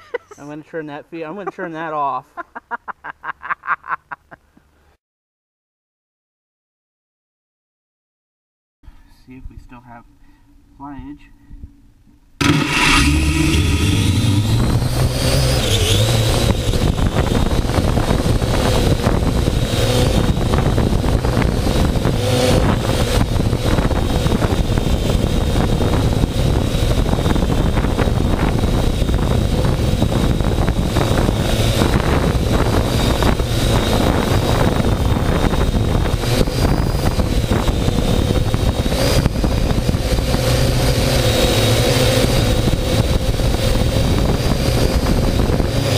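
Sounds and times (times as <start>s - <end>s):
heavy low rumble: 9.3s - 45.9s
drone propellers whining: 10.0s - 45.9s.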